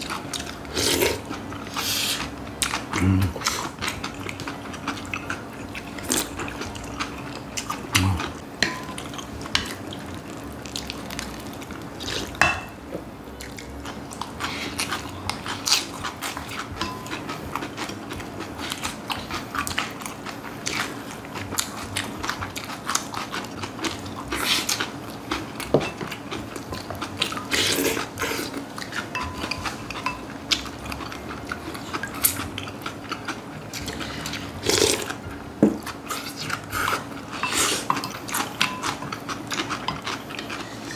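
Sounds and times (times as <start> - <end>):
crunchy chewing: 13.4 - 40.9.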